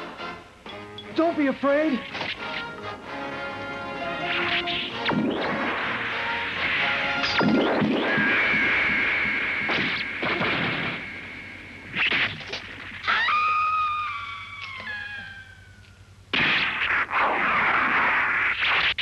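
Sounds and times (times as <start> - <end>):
sharp hits: 4.1 - 13.0, 16.3 - 19.0
shrill screeching cry: 13.0 - 16.0.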